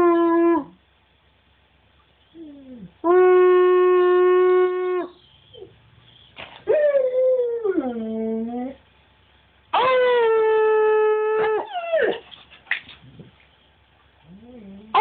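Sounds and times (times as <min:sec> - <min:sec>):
dog howling: 0:09.8 - 0:12.2.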